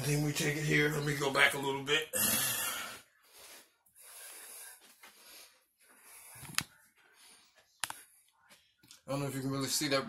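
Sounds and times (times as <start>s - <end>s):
faint soft breathing: 2.9s - 8.8s.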